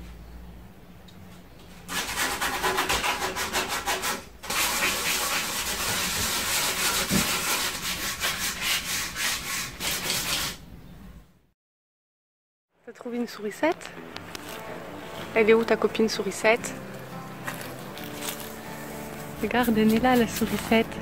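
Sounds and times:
sandpaper rubbing on wood: 0:01.9 - 0:10.6, 0:17.5 - 0:21.0.

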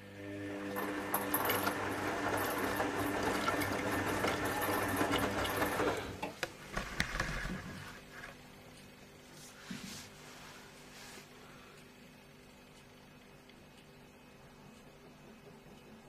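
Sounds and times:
washing machine drum turning: 0:00.5 - 0:07.7.

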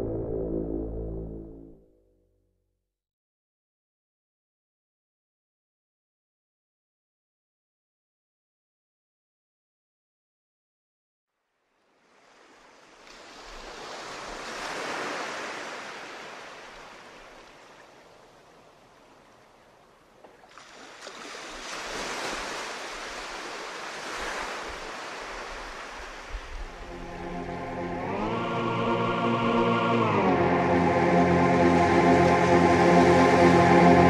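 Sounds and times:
faint low rumble: 0:00.0 - 0:01.8
pitched music: 0:00.0 - 0:01.8, 0:26.8 - 0:34.0
rushing surf-like noise: 0:21.8 - 0:34.0.

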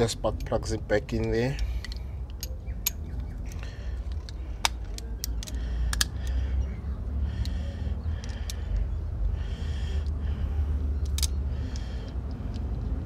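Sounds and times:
metal tools clinking: 0:00.0 - 0:06.0
low steady rumble: 0:00.0 - 0:13.0.

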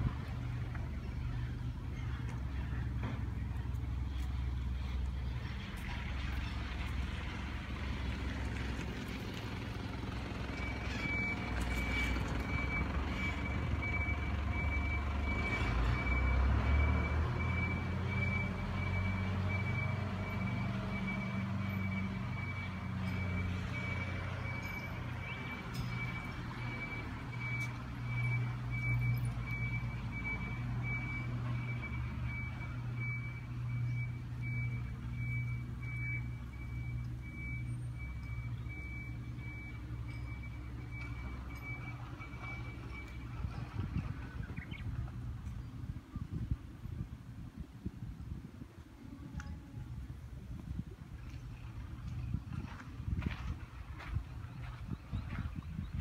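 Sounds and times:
engine rumble: 0:00.0 - 0:56.0
reversing alarm beeping: 0:10.4 - 0:44.6.

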